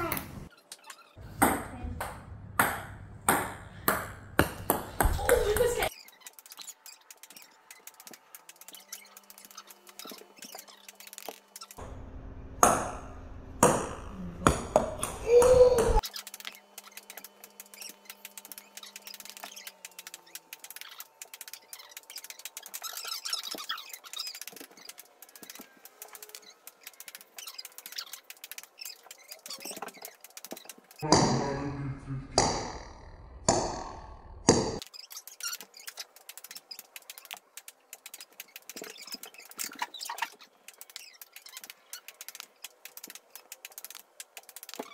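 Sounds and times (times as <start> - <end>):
ping pong ball bouncing on wood: 1.3 - 5.8, 12.6 - 13.0, 13.6 - 16.0, 32.4 - 33.9
ping pong ball clicks: 1.4 - 5.7.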